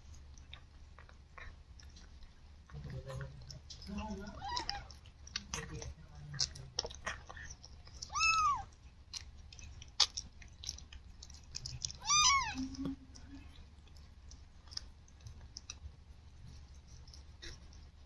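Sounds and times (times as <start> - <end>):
cat licking and chewing: 0.0 - 18.0
kitten mewing: 8.1 - 8.7, 11.9 - 12.9.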